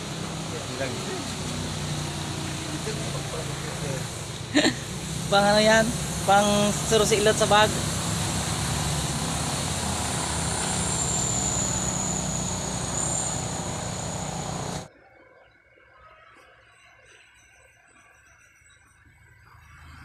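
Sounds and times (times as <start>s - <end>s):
air blower whirring: 0.0s - 14.9s.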